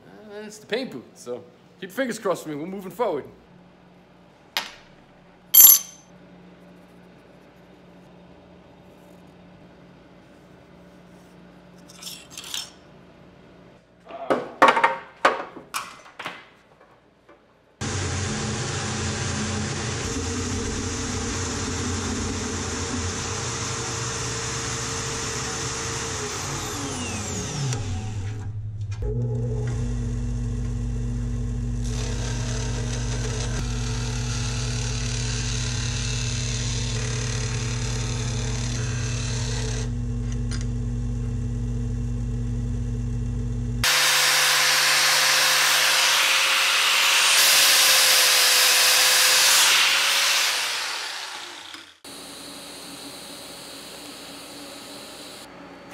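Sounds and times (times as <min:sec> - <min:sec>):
angle grinder grinding steel: 0:31.8 - 0:39.9, 0:43.8 - 0:52.1
band saw cutting steel: 0:31.8 - 0:39.9, 0:43.8 - 0:52.1
disc sander grinding steel: 0:31.8 - 0:39.9, 0:43.8 - 0:55.5.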